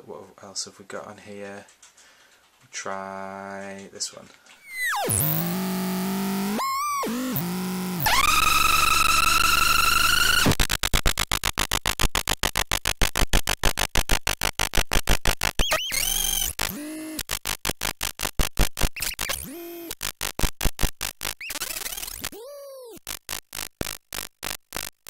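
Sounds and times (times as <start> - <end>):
glitchy electronic sound effect: 4.6 - 25.0.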